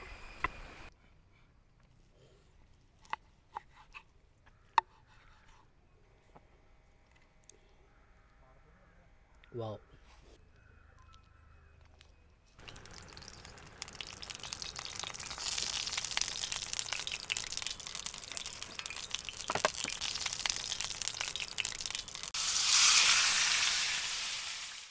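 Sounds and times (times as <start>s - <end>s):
food sizzling in hot oil: 12.6s - 24.9s
bright hiss: 21.2s - 24.9s.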